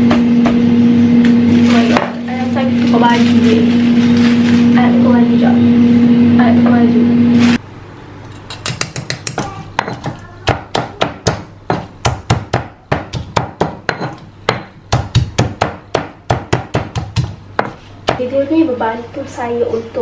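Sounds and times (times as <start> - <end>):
stone pestle pounding in mortar: 8.6 - 18.3.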